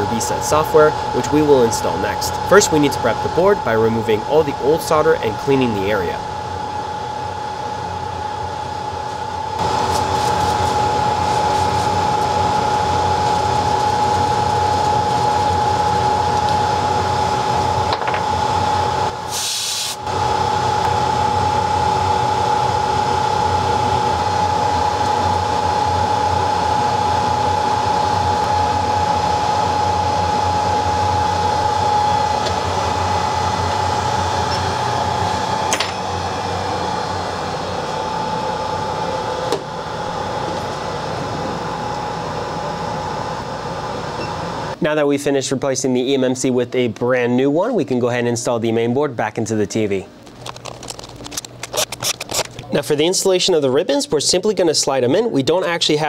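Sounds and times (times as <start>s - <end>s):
electric blower whirring: 6.2s - 19.3s, 20.0s - 44.8s.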